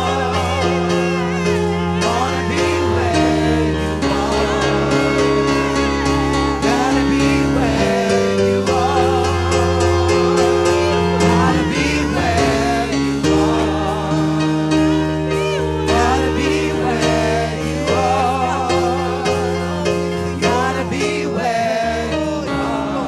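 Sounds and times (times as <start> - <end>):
gospel group singing: 0.0 - 23.0
instrumental backing: 0.0 - 23.0.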